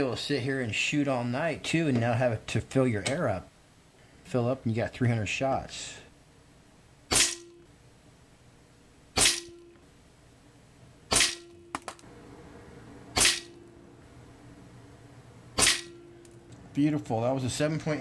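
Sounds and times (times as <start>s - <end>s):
air rifle shots: 7.1s - 7.6s, 9.2s - 9.6s, 11.1s - 11.9s, 13.1s - 13.6s, 15.6s - 16.2s
sharp crack with low ring: 7.1s - 7.7s, 9.2s - 9.7s, 11.1s - 11.7s, 13.2s - 13.7s, 15.6s - 16.1s.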